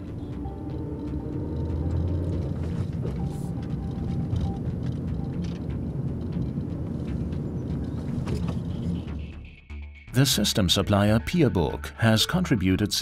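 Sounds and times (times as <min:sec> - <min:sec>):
car engine and road noise: 0:00.0 - 0:09.7.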